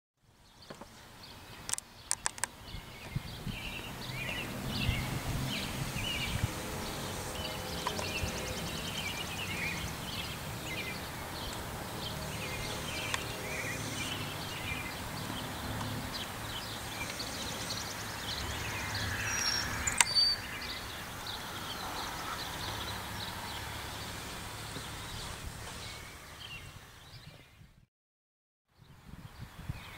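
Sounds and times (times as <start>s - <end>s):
birds chirping and singing: 0.6s - 27.6s
sharp click: 1.7s - 2.5s.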